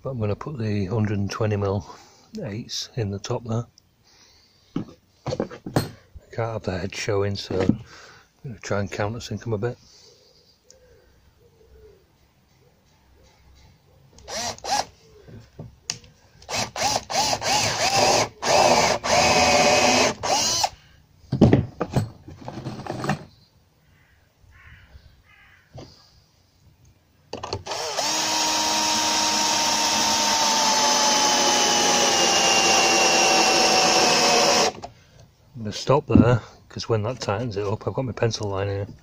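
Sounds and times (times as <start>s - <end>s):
cordless drill whining: 14.2s - 14.9s, 16.4s - 20.8s, 27.5s - 34.9s.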